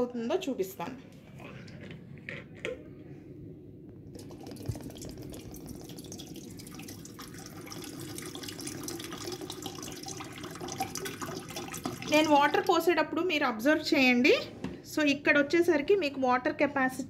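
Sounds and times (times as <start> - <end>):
water pouring into metal kettle: 4.2 - 12.7.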